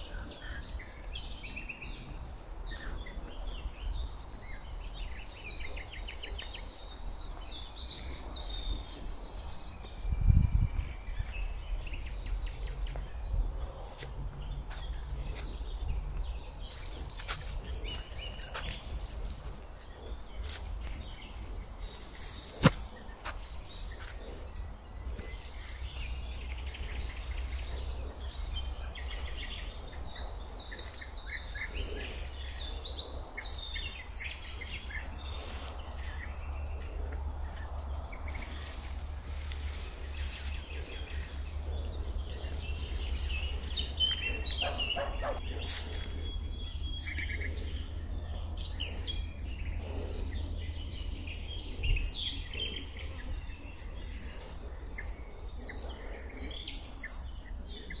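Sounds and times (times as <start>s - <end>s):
songbirds singing: 0.0s - 58.0s
steady low rumble: 0.0s - 58.0s.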